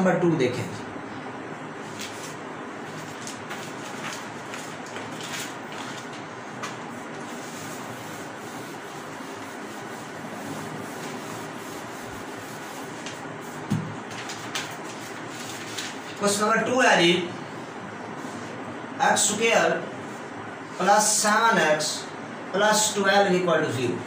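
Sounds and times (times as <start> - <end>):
eraser wiping whiteboard: 1.9 - 16.0.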